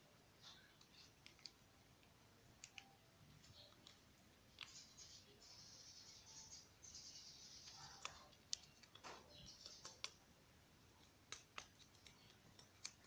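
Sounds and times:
small clicks and light taps: 0.4 - 5.2, 7.6 - 10.2, 10.9 - 13.0.

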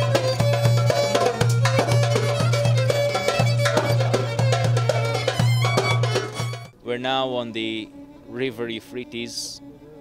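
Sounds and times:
hand drum strokes: 0.0 - 6.8
violin melody: 0.0 - 10.0.

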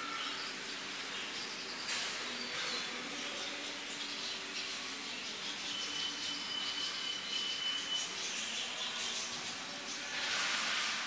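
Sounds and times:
small birds chirping and twittering: 0.0 - 11.0.

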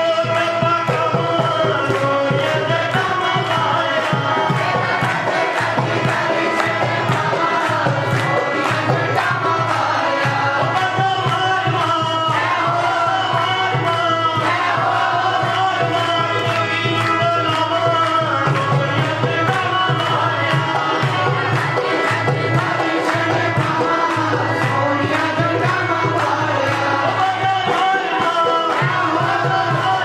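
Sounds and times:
crowd clapping: 0.0 - 30.0
harmonium: 0.0 - 30.0
man singing into microphone: 0.0 - 30.0
hand drum beat: 0.6 - 12.8.

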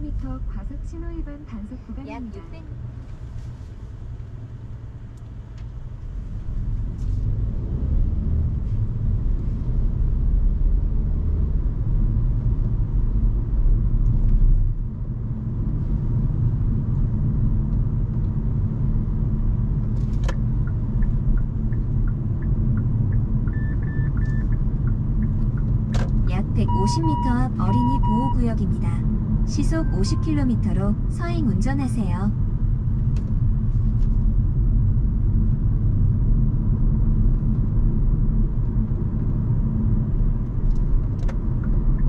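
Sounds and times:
road and tyre noise: 0.0 - 42.0
short high beeps: 26.6 - 28.5, 29.7 - 30.5.

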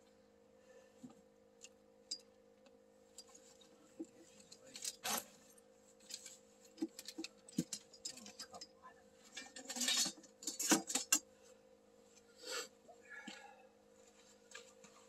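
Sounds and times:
faint steady hum: 0.0 - 15.0
gear clinking and knocking: 6.0 - 8.7, 9.3 - 11.2.

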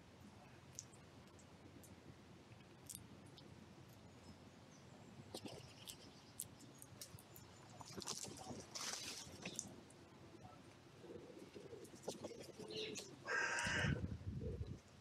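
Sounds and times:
squirrels gnawing nuts: 0.6 - 4.0, 5.3 - 9.8.

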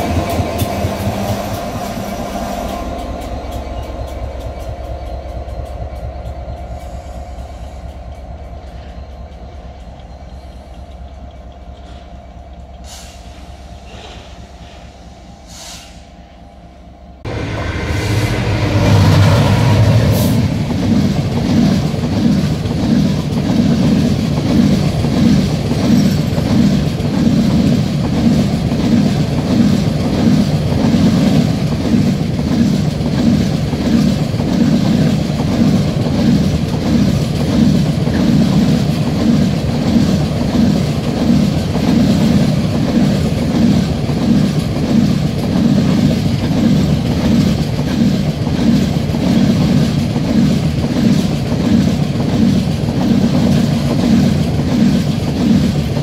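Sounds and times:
clickety-clack of train: 0.0 - 16.4, 17.1 - 56.0
diesel locomotive drone: 0.0 - 56.0
train wheels rumbling on rails: 0.0 - 56.0.

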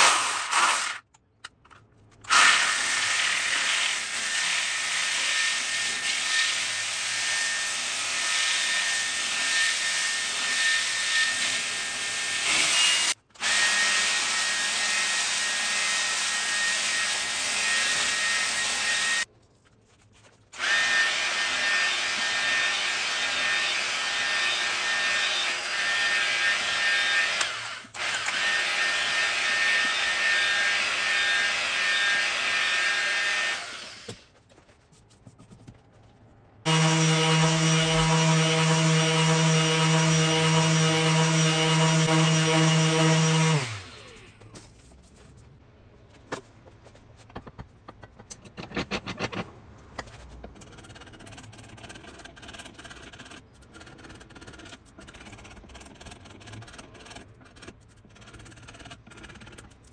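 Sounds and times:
orbital sander humming: 36.7 - 44.0
angle grinder sanding wood: 36.7 - 44.3.

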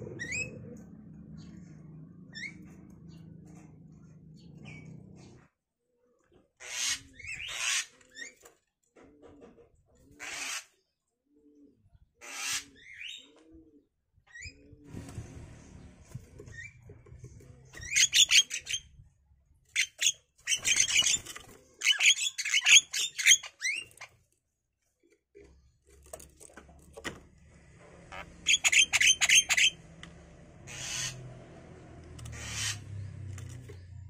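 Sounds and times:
brief rushing sounds: 14.9 - 16.2
birds chattering calls: 28.1 - 29.8, 30.6 - 31.3, 32.2 - 34.0.

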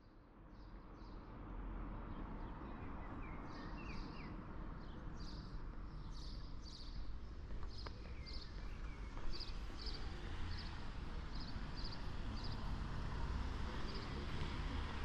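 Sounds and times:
small birds chirping: 2.7 - 12.6.

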